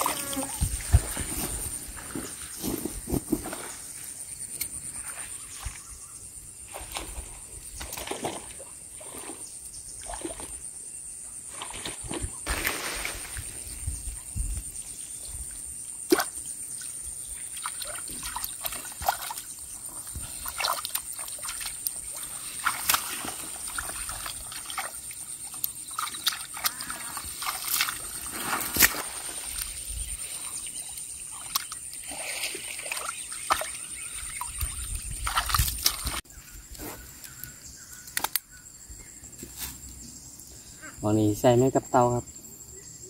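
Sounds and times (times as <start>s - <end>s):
muddy water sloshing: 6.6s - 10.6s, 11.5s - 13.8s, 16.1s - 36.3s.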